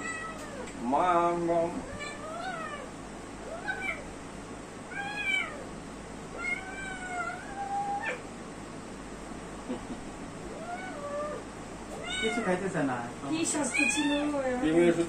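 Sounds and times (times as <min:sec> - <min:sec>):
kitten meowing: 0:00.0 - 0:00.7, 0:01.8 - 0:04.1, 0:04.9 - 0:05.6, 0:06.4 - 0:08.2, 0:12.0 - 0:12.6.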